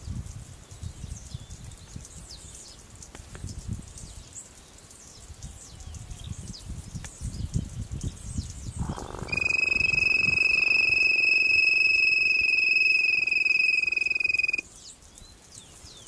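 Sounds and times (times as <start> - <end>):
low rumble on microphone: 8.7 - 14.6
high-pitched chirps: 8.8 - 14.6.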